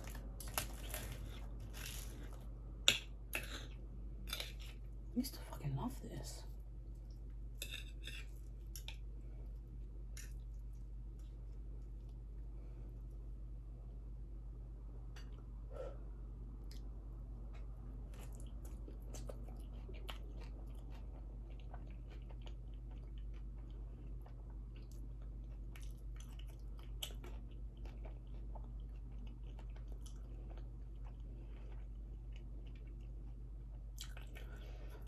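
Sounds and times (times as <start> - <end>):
wet chewing: 17.5 - 35.0.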